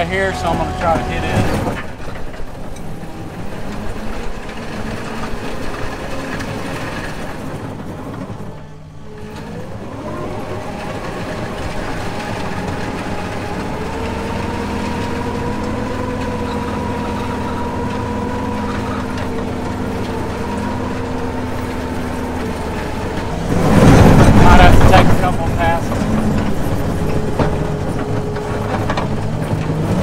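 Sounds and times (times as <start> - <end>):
diesel engine revving and running: 0.0 - 30.0
steady whine: 15.8 - 29.7.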